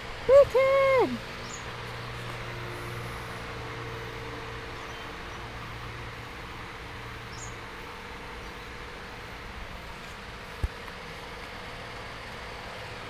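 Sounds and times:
outdoor hum and hiss: 0.0 - 13.0.

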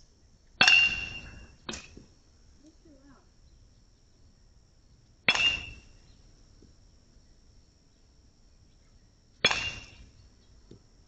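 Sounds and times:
metal bat hitting baseball: 0.6 - 2.0, 5.3 - 5.9, 9.4 - 10.1.

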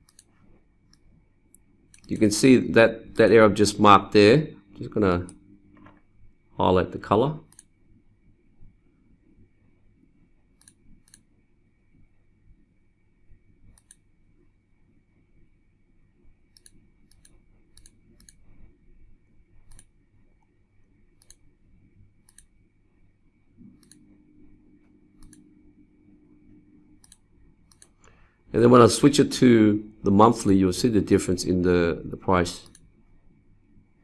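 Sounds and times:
computer mouse clicking: 0.0 - 2.4, 7.5 - 7.8, 10.6 - 11.3, 13.7 - 14.1, 16.5 - 18.6, 19.6 - 20.5, 21.2 - 21.5, 22.2 - 22.6, 23.6 - 25.6, 27.0 - 28.2, 32.6 - 32.9
faint low hum: 0.0 - 34.0.

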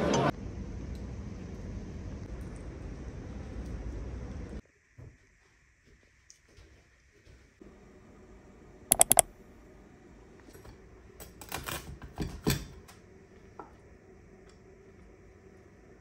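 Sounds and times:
sharp clicks: 8.9 - 9.3
dishes clattering on counter: 12.1 - 12.8.

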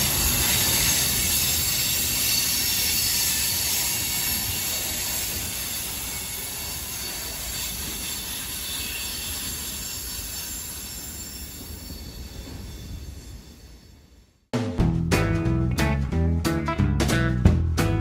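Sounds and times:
high wheel squeal: 0.0 - 14.0
freight train rolling on rails: 0.0 - 14.3.

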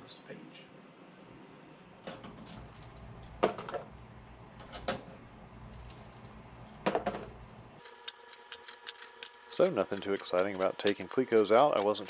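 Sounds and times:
sharp metallic clicks: 7.8 - 12.0.

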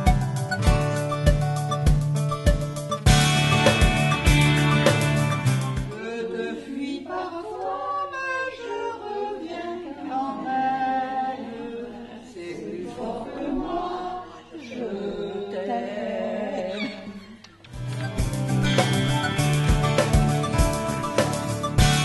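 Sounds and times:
background music: 0.0 - 6.4, 17.6 - 22.0
group singing unaccompanied: 5.9 - 17.2.

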